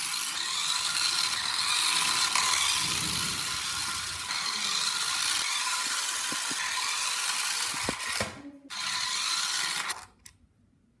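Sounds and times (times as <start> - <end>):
toy car motor whirring: 0.0 - 10.2.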